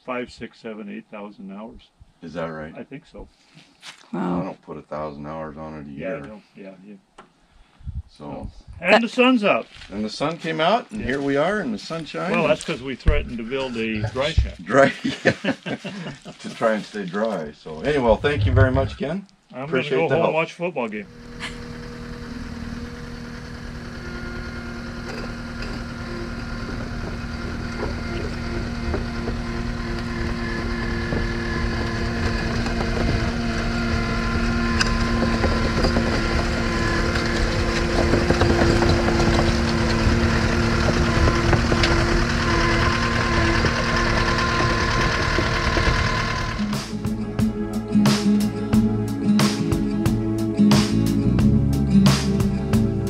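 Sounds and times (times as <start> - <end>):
diesel engine running: 21.1 - 47.2
steel tracks clanking: 21.4 - 46.9.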